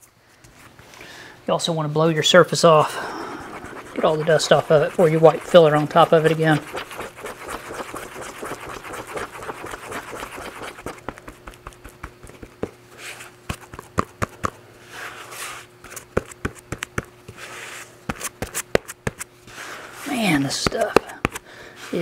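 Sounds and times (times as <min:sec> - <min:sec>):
spreader scraping filler: 0:02.5 - 0:11.0.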